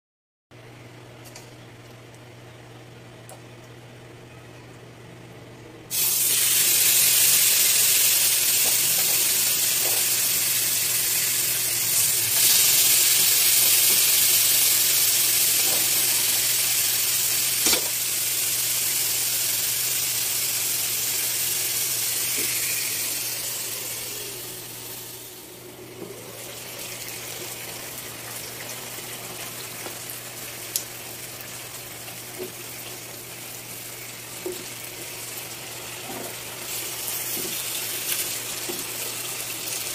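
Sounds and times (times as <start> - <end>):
meat sizzling on a grill pan: 5.9 - 25.2, 33.6 - 39.9.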